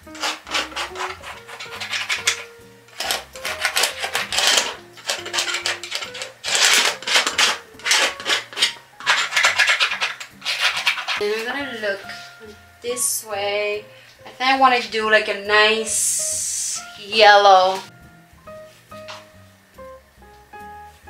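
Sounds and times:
tool scraping paint on canvas: 0.0 - 11.3
soft background music: 0.0 - 21.0.

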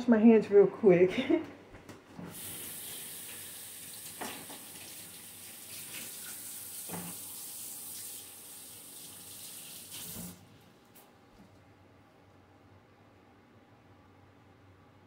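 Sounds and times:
faucet running: 2.3 - 10.4.

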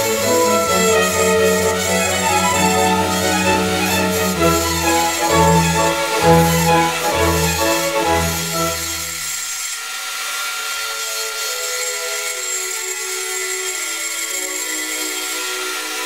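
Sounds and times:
soft string music: 0.0 - 9.3
faint lathe whine: 0.0 - 16.0
lathe tool cutting hiss: 0.0 - 16.0.

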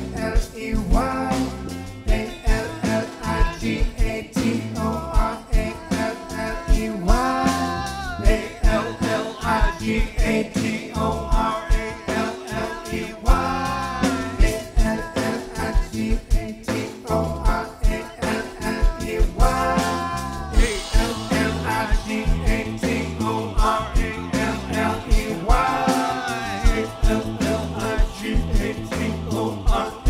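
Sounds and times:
drum kit: 0.0 - 30.0
electric guitars: 0.0 - 30.0
keyboard: 0.0 - 30.0
person singing: 0.0 - 30.0.

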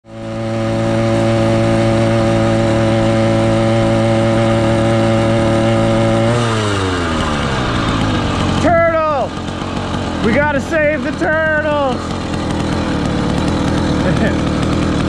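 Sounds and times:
two-stroke engine running: 0.0 - 15.0.

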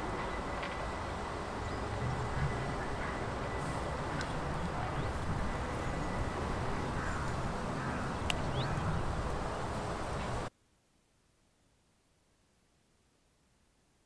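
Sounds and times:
steady hiss: 0.0 - 13.9
wind rumbling on microphone: 1.2 - 10.5
faint clicks: 8.2 - 8.9.

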